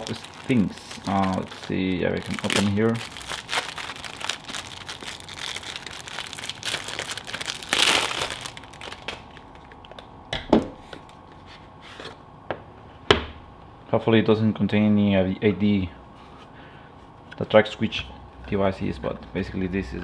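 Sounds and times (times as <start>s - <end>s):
plastic packaging crinkling: 0.0s - 10.0s.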